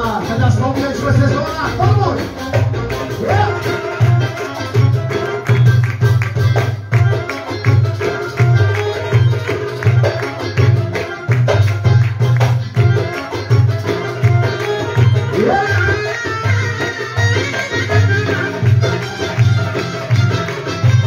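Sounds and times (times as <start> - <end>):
hand drum rhythm: 0.0 - 21.0
keyboard with steady bass beat: 0.0 - 21.0.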